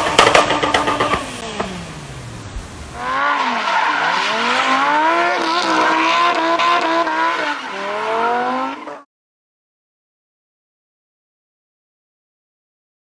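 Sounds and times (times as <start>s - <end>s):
car engine revving: 0.0s - 9.1s.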